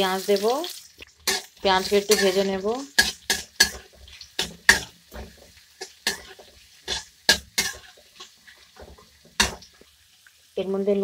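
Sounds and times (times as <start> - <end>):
onions frying in hot oil: 0.0 - 11.0
spatula scraping metal pan: 1.2 - 9.8.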